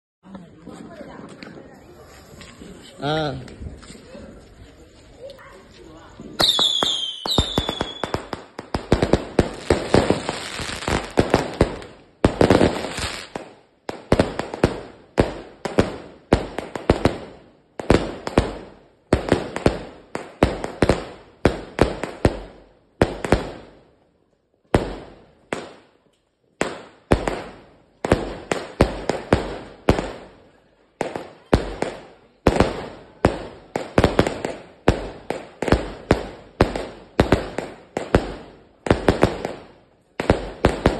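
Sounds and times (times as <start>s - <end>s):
fireworks launching and bursting: 6.2s - 23.8s, 26.6s - 40.9s.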